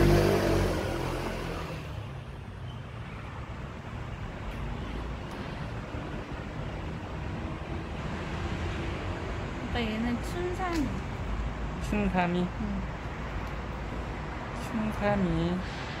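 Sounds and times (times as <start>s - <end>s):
vehicle passing: 0.0s - 2.4s
road traffic rumble: 0.0s - 16.0s.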